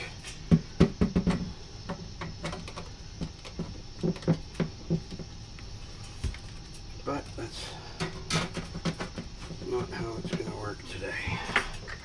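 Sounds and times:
sheet-metal vent pipe knocking: 8.0 - 11.6.

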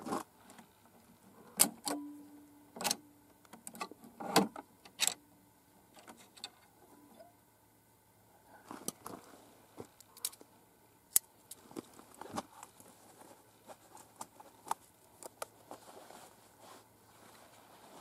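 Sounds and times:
clothing rustling: 15.5 - 18.0.

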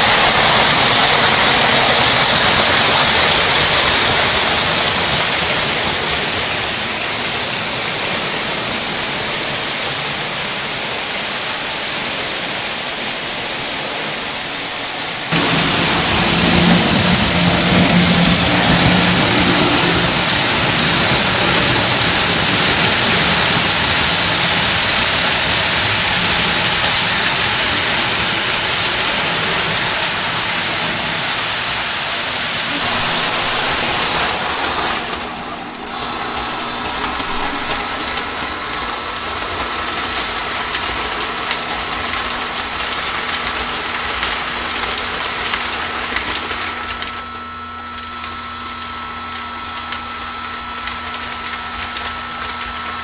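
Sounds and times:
toy train wheels rolling on rails: 0.0 - 6.8, 15.3 - 31.0, 32.7 - 53.0
steady hum tone: 15.3 - 23.2, 32.6 - 42.9
electric motor hum: 15.3 - 31.6, 32.6 - 53.0.

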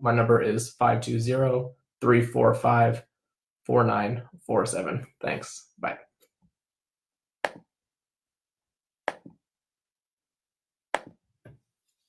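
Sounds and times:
sharp clicks or knocks: 7.4 - 7.7, 11.0 - 11.6.

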